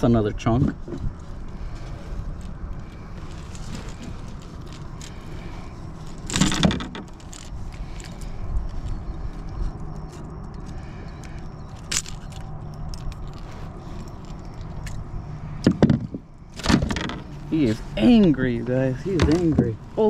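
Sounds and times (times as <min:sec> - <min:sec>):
fishing tackle rattling and scraping: 0:00.4 - 0:20.0.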